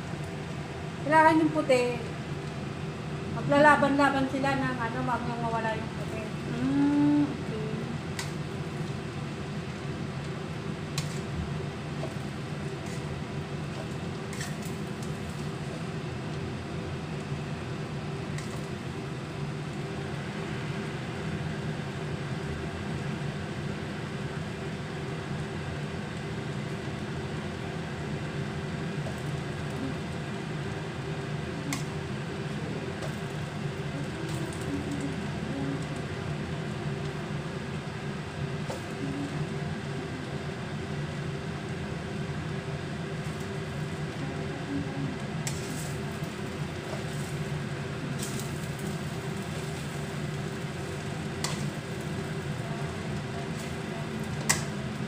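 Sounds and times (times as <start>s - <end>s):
fan motor hum: 0.0s - 55.0s.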